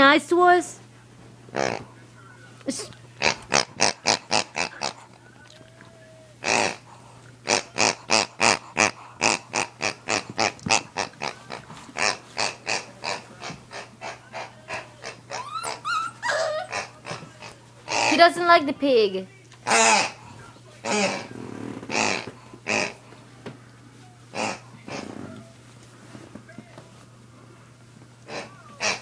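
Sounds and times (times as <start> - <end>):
rubber squeeze toy squeaking: 15.3 - 16.9.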